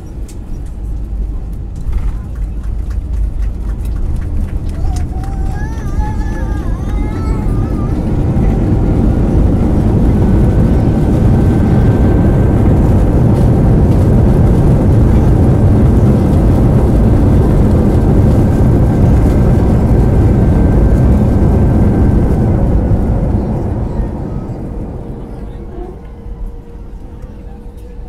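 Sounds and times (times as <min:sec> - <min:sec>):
jet engine rumble in cabin: 0:00.0 - 0:28.0.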